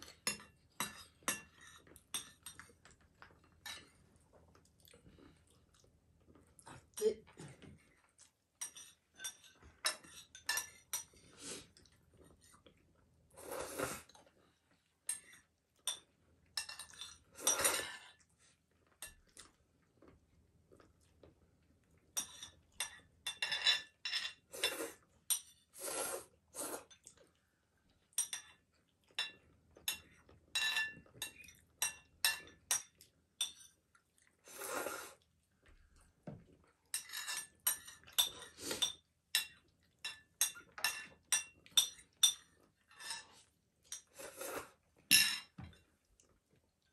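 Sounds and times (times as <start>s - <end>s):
spoon clinking on ceramic bowl: 29.2s - 33.8s, 36.9s - 43.2s, 45.1s - 45.6s.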